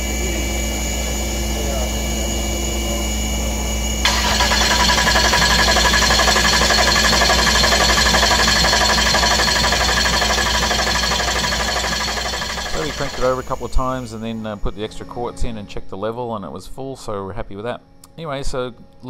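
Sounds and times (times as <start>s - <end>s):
steady shop hum: 2.9s - 15.4s
starter motor cranking diesel engine: 4.0s - 14.5s.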